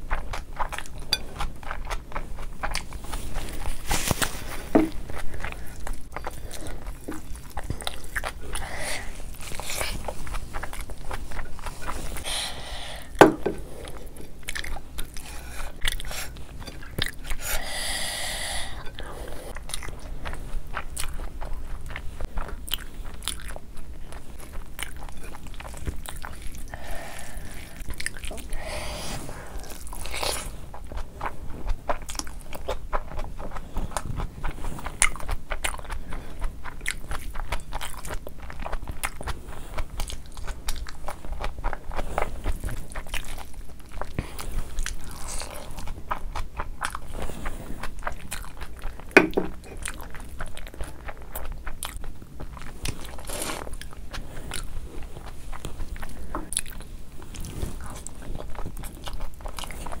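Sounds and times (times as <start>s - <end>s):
person chewing with wet smacking: 0.0s - 60.0s
knock: 13.2s - 13.6s.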